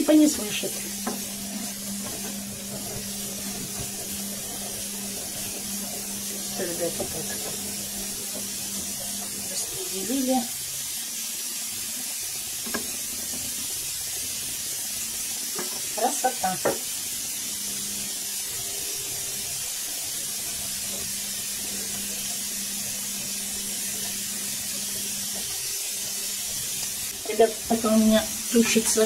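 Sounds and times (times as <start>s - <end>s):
carrots sizzling in oil: 0.0s - 29.0s.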